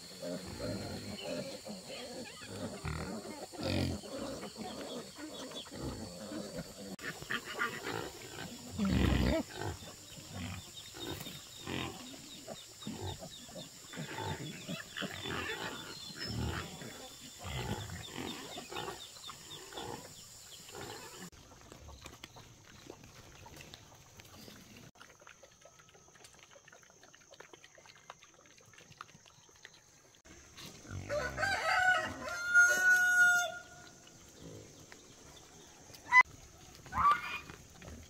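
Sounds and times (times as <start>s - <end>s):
farm animal sounds: 0.0s - 38.0s
rooster crowing: 31.0s - 33.8s.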